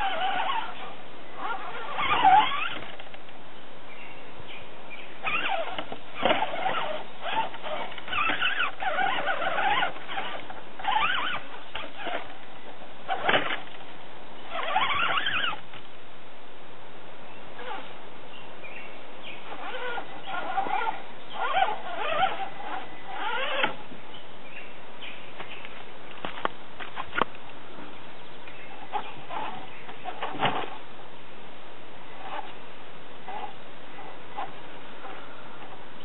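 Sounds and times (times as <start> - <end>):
toy car electric motor whining: 0.0 - 3.0, 5.2 - 12.3, 14.5 - 15.6, 19.4 - 23.8.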